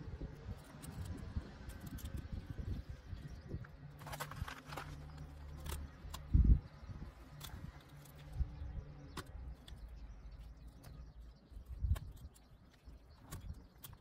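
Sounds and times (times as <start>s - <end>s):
small cracks and clicks: 7.2s - 14.0s.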